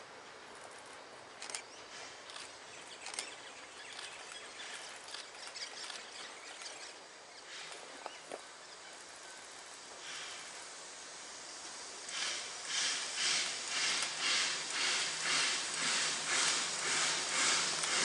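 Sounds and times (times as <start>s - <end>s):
steady hiss: 0.0s - 18.0s
rustles and small clicks: 0.5s - 7.0s
faint bird chirp: 1.4s - 10.5s.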